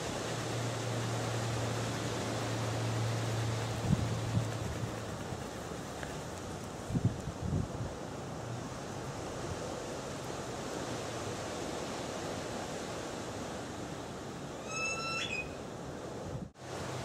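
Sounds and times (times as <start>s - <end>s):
short high squeak: 14.6s - 15.6s.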